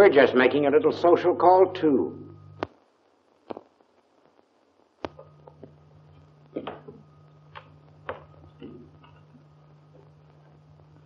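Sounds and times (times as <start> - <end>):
low steady film soundtrack hum: 0.0 - 11.0
faint clicks and soft knocks: 3.4 - 10.9.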